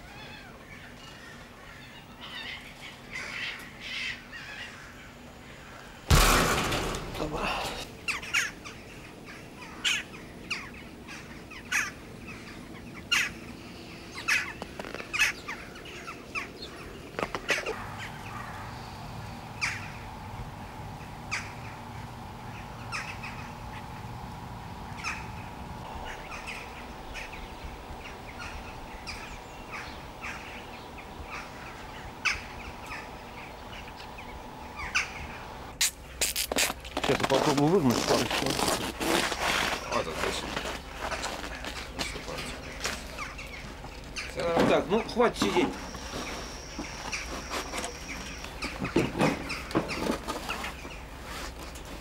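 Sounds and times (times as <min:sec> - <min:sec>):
outdoor background: 0:00.0 - 0:52.0
crows cawing: 0:06.7 - 0:16.8, 0:17.5 - 0:20.1, 0:21.0 - 0:24.0, 0:24.9 - 0:35.5.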